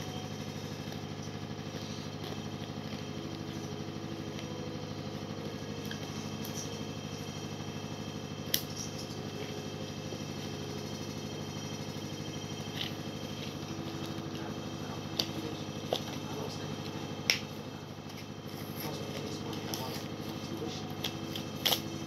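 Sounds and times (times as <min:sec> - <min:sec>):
low hum: 0:00.0 - 0:22.0
scissors snipping plastic: 0:20.9 - 0:22.0.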